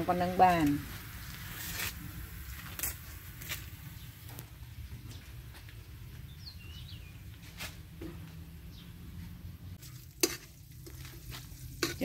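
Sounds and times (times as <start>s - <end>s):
faint frying sizzle: 0.0s - 4.5s, 9.8s - 12.0s.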